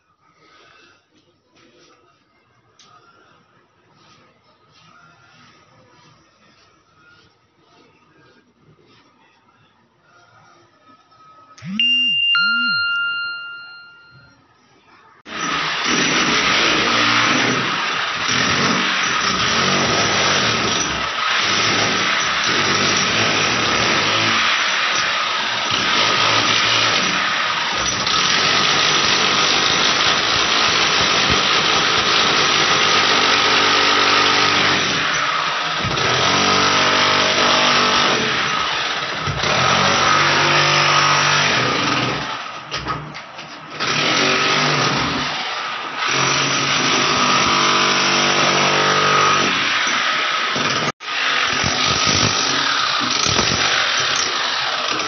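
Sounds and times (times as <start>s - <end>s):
electric chipping hammer breaking brick: 15.3s - 42.9s, 43.7s - 55.0s.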